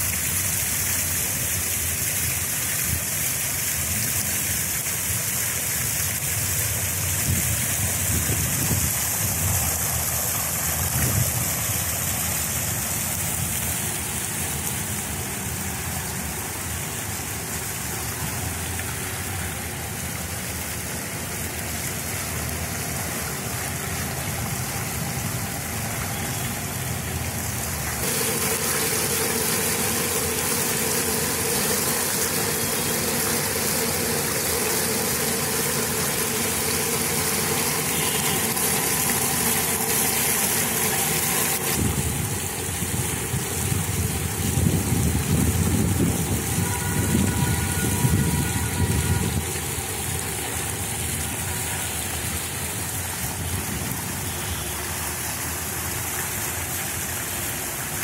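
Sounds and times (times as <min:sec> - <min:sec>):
water fountain hissing and splashing: 0:00.0 - 0:58.0
steady hum: 0:28.0 - 0:41.8.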